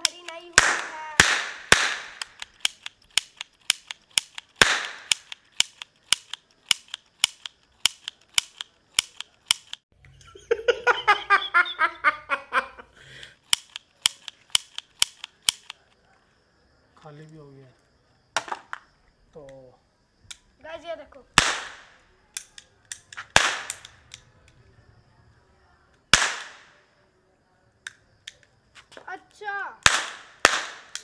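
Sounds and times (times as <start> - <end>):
toy cap pistols firing: 0.0 - 9.8, 13.4 - 15.9, 21.4 - 24.6, 26.1 - 26.8, 29.8 - 31.0.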